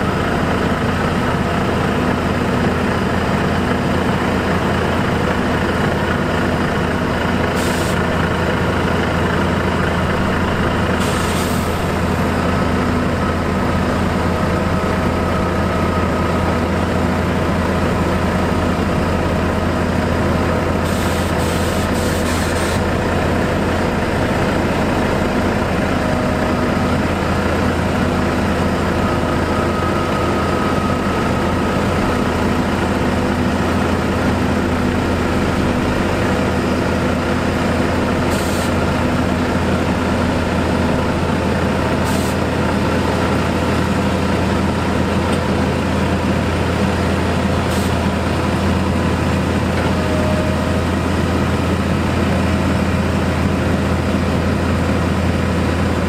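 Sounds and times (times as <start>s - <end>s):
diesel machinery engine drone: 0.0s - 56.0s.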